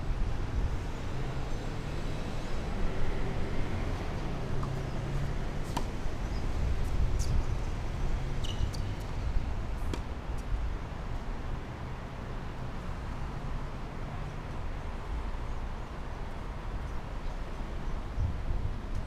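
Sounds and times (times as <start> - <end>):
wind on microphone: 18.1 - 19.0.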